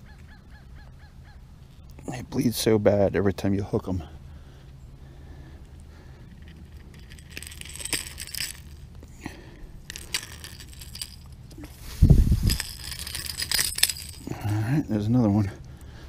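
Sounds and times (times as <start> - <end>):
metal pliers clicking and scraping: 12.5 - 14.5.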